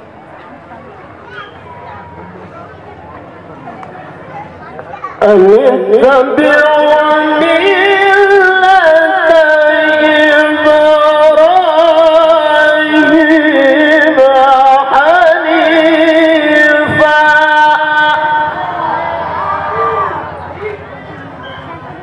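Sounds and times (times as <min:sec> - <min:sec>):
man reciting melodically: 0:05.2 - 0:19.0.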